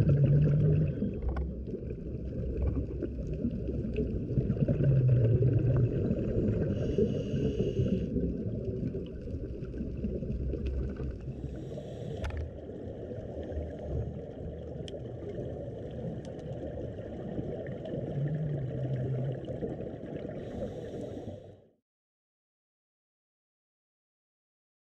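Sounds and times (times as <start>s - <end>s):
scuba diver breathing underwater: 0.0s - 1.5s, 4.8s - 8.5s, 11.3s - 12.6s, 20.2s - 21.7s
bubbles exhaled underwater: 0.0s - 21.5s.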